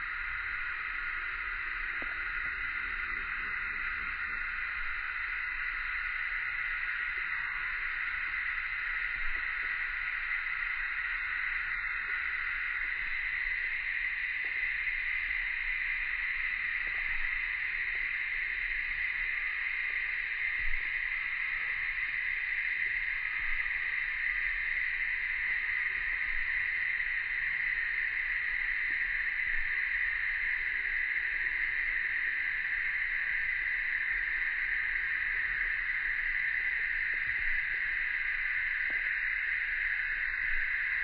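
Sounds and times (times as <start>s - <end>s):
cicadas droning: 0.0s - 41.0s.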